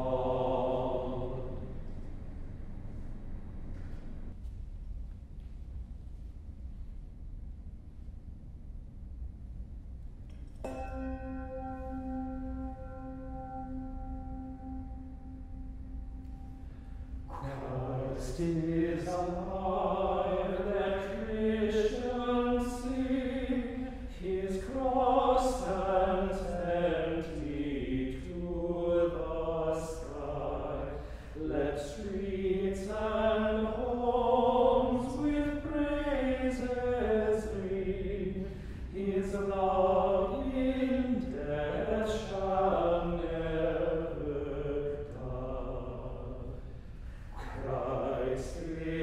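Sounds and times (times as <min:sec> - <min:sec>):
men's choir singing: 0:00.0 - 0:01.6, 0:17.3 - 0:46.5, 0:47.4 - 0:49.0.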